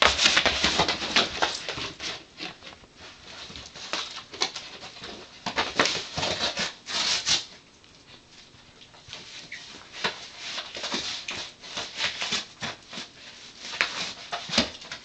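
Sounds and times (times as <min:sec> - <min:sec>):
cardboard box crackling and rustling: 0:00.0 - 0:07.4.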